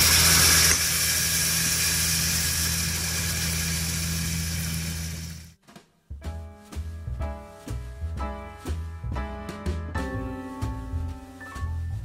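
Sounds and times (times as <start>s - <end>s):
food sizzling in hot oil: 0.0s - 5.5s.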